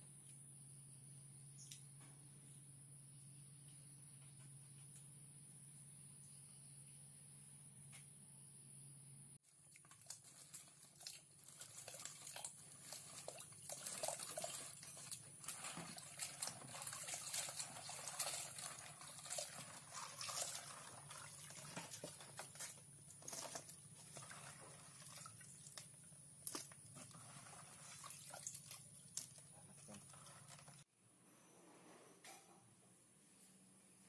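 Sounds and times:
water sloshing in bucket: 9.5s - 30.9s.

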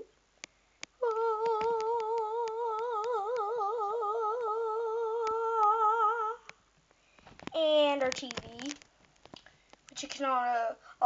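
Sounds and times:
faint clicks: 0.4s - 3.8s
child singing a long note: 1.0s - 6.4s.

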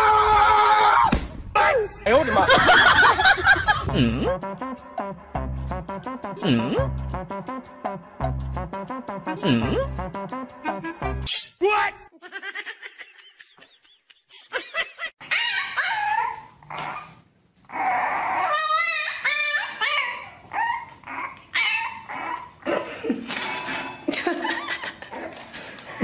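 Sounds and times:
puppy whining and yipping: 15.2s - 22.6s.

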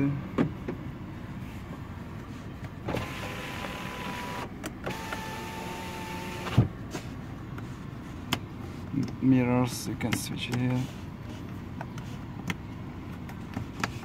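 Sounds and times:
electric window motor whining: 2.8s - 6.7s.

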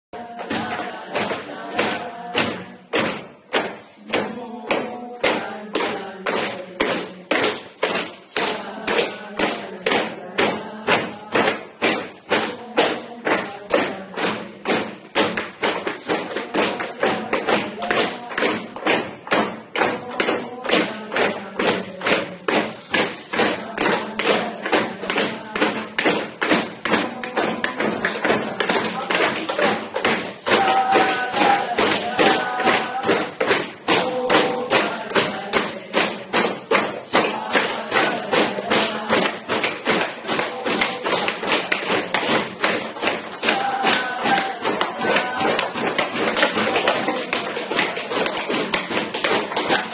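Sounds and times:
boys chanting: 0.0s - 49.9s
group stamping beat: 0.0s - 49.9s
rhythmic thumps: 0.0s - 49.9s
people shouting: 43.4s - 48.3s, 49.4s - 49.9s.

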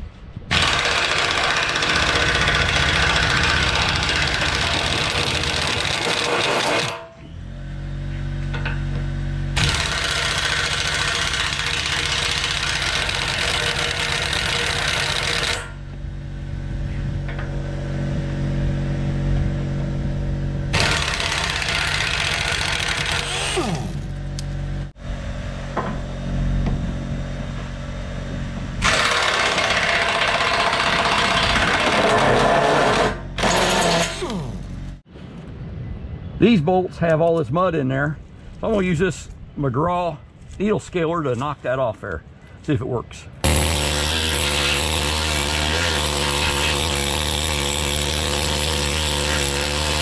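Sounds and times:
pneumatic impact wrench hammering: 0.5s - 7.2s, 9.6s - 15.8s, 20.7s - 24.2s, 28.8s - 34.8s, 43.4s - 50.0s
steady low hum: 1.6s - 29.6s.

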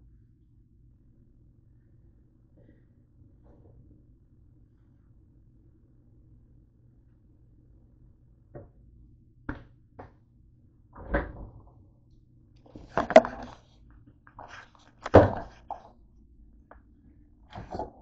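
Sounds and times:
loud thunks: 15.1s - 15.6s.

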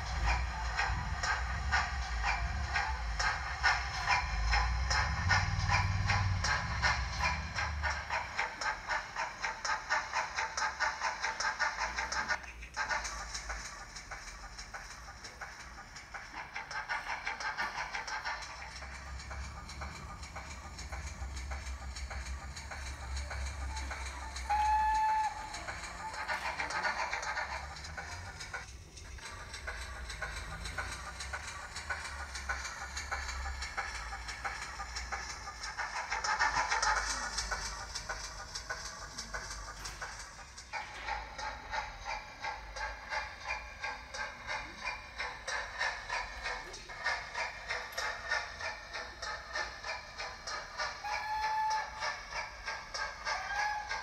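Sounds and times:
steam locomotive exhaust chuffs: 0.0s - 54.0s.

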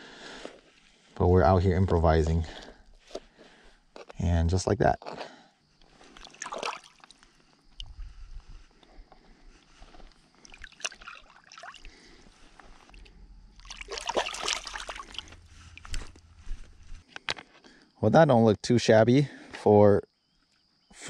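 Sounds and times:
wet sloshing and trickling: 5.8s - 8.1s, 9.6s - 17.0s.

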